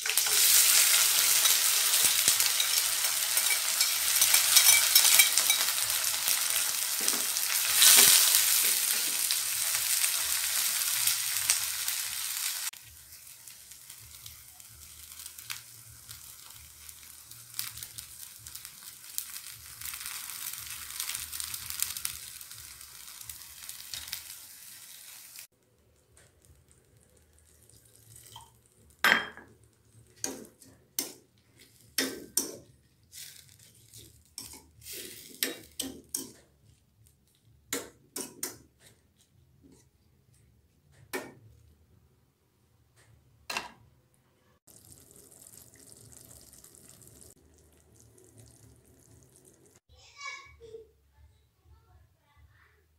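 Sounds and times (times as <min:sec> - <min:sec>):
spoon scraping against a wok: 0:00.0 - 0:06.3
bean sprouts sizzling in a wok: 0:00.0 - 0:29.0, 0:29.8 - 0:36.4, 0:44.7 - 0:49.9.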